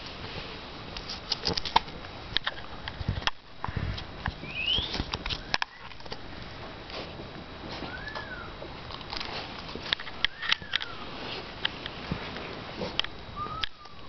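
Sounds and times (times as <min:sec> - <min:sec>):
puppy sniffing and snuffling: 0:06.8 - 0:08.0.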